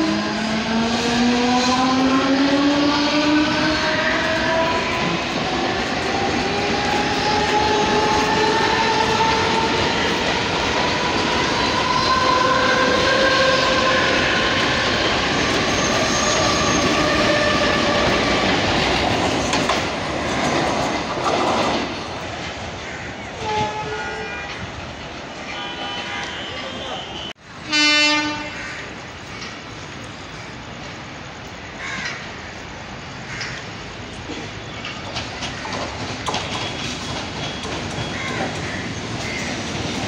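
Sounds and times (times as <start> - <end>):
train wheels on rails: 0.0 - 40.0
train horn tone: 23.4 - 24.7, 25.4 - 28.8.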